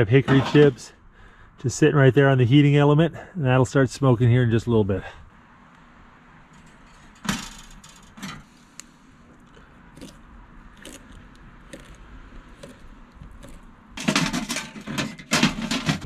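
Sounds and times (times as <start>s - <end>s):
metal racks clinking: 13.4s - 16.0s
metal door rattling shut: 14.0s - 16.0s.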